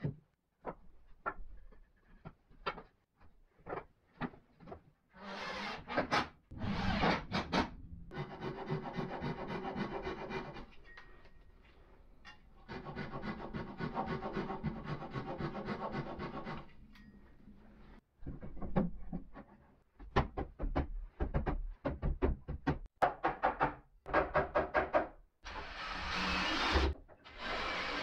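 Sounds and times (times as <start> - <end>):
saw rasping through wood: 8.1 - 10.8, 12.6 - 16.7.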